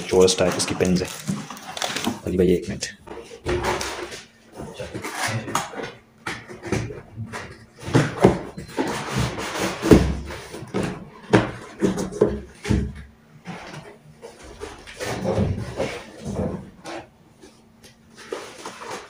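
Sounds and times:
cardboard scraping and rustling: 0:00.0 - 0:02.3, 0:03.2 - 0:06.0, 0:07.4 - 0:12.7, 0:13.4 - 0:19.0.

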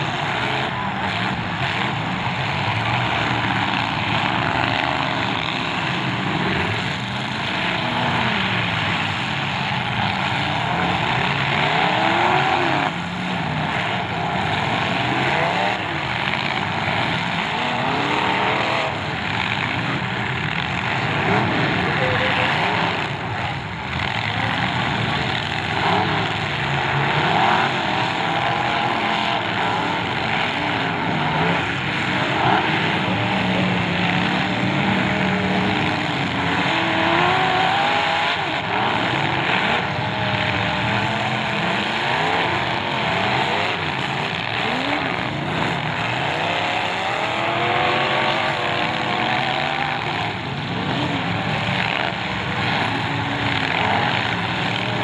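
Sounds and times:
car engines revving: 0:00.0 - 0:55.0.

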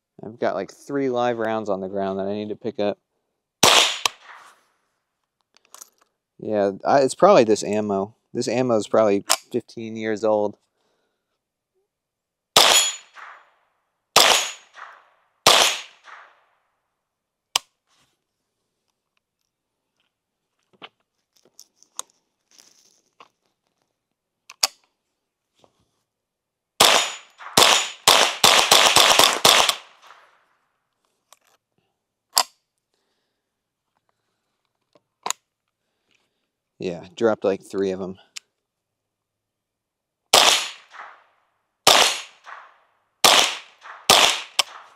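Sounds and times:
rifle shots: 0:03.6 - 0:04.6, 0:12.6 - 0:13.5, 0:14.2 - 0:16.4, 0:26.8 - 0:30.3, 0:40.3 - 0:44.9
rifle action clicks and rattles: 0:05.2 - 0:06.2, 0:18.9 - 0:25.0, 0:31.0 - 0:31.6, 0:43.3 - 0:44.9.

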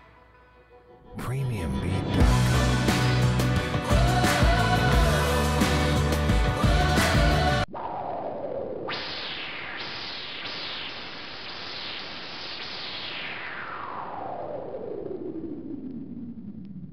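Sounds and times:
song playing: 0:00.0 - 0:07.7
falling electronic sweeps: 0:07.7 - 0:16.6
static hiss: 0:09.0 - 0:13.6.

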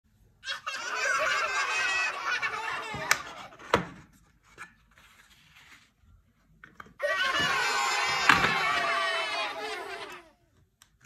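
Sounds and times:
voices laughing and squealing: 0:00.4 - 0:03.6, 0:07.0 - 0:10.4.

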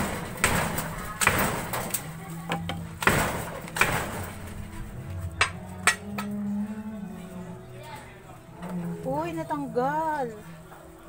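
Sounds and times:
plant pots and tool knocking: 0:00.0 - 0:04.3, 0:05.4 - 0:06.4.

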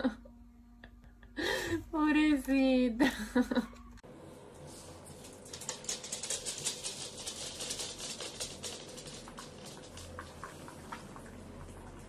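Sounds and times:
dogs eating from bowls: 0:05.4 - 0:12.0.

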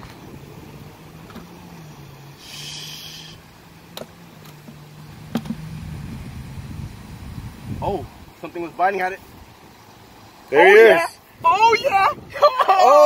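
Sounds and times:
low motor drone: 0:00.0 - 0:08.8
buzzy hiss: 0:00.0 - 0:12.3.

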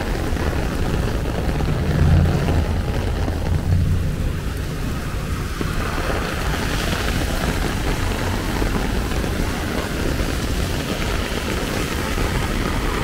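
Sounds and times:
low rumble: 0:00.0 - 0:07.2
heavy rain on an umbrella: 0:00.0 - 0:13.0.

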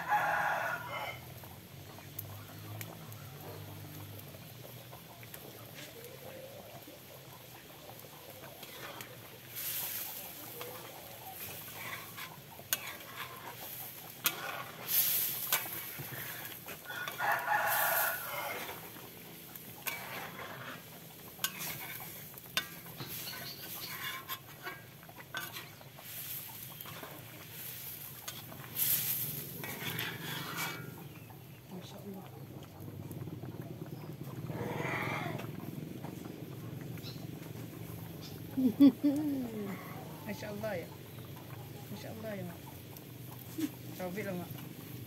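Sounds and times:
rooster crowing: 0:00.0 - 0:01.4, 0:16.8 - 0:19.0
ladle scraping in a wok: 0:06.9 - 0:31.6.

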